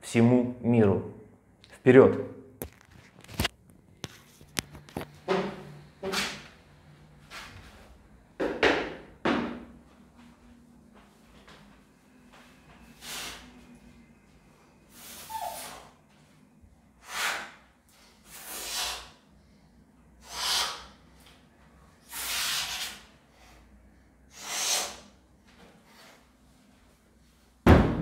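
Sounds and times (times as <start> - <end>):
loud thump: 27.6 - 28.0.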